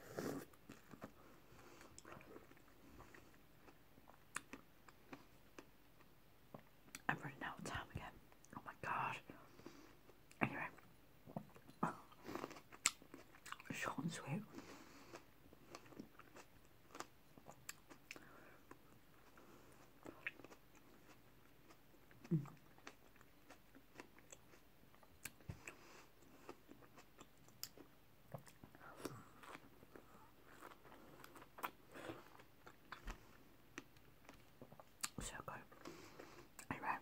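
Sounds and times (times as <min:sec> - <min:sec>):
person chewing: 0:00.1 - 0:07.1, 0:11.3 - 0:13.7, 0:14.6 - 0:36.7.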